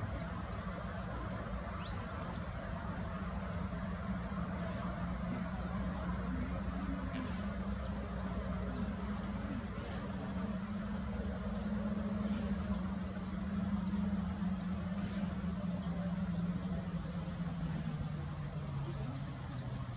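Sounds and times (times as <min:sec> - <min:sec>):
low motor hum with rumble: 0:00.0 - 0:19.9.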